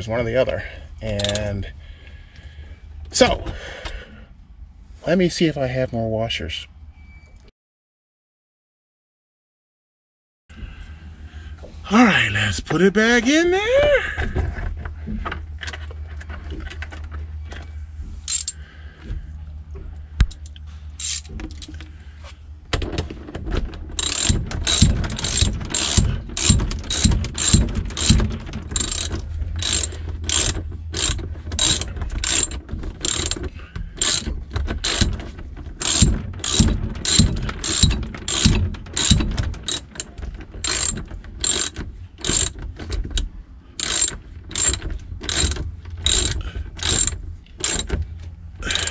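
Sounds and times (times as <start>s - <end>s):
ratchet wrench clicking: 18.3s - 18.6s, 20.3s - 21.3s, 24.0s - 28.2s, 28.8s - 33.4s, 34.0s - 35.1s, 35.8s - 47.9s, 48.6s - 48.9s.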